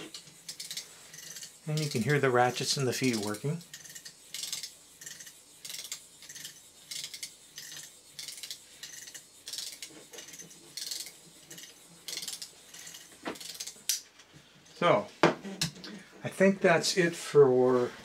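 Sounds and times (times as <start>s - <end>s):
plastic robot legs clattering: 0.0s - 2.0s, 3.0s - 14.0s.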